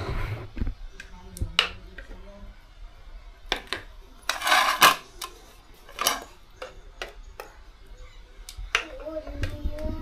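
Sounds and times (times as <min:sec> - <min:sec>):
ladle scraping pot: 0:04.3 - 0:05.1.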